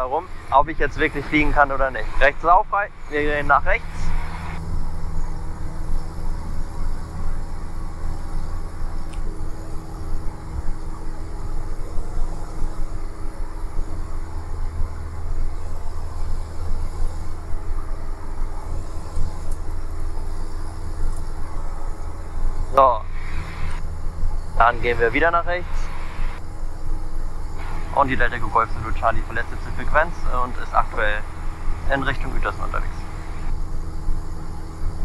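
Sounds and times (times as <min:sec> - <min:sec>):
light aircraft engine drone: 0:00.0 - 0:35.0.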